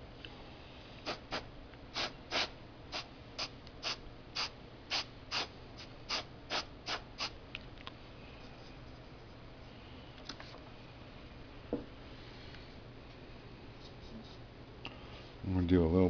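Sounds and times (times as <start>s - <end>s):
airbrush spraying spurts: 1.0s - 7.4s.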